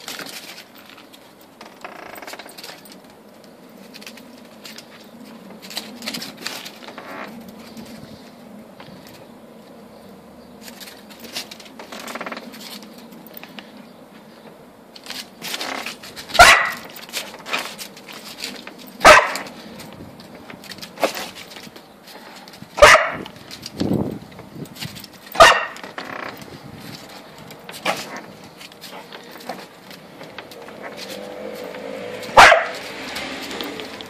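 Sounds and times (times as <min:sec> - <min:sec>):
dog barking: 0:16.4 - 0:16.9, 0:19.0 - 0:19.5, 0:22.8 - 0:23.3, 0:25.4 - 0:25.8, 0:32.3 - 0:32.8.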